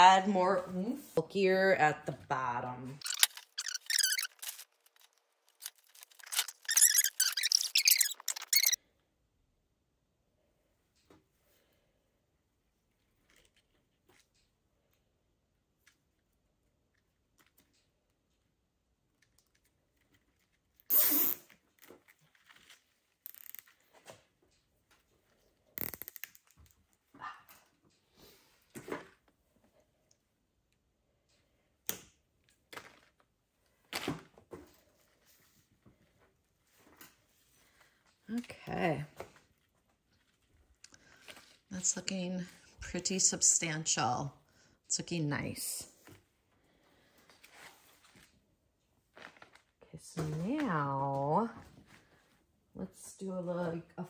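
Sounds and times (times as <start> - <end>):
branches rustling and squeaking: 3.0 - 8.8.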